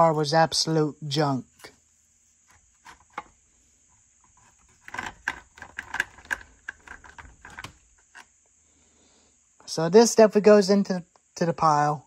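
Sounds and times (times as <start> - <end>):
metal parts clicking and rattling: 4.3 - 8.2.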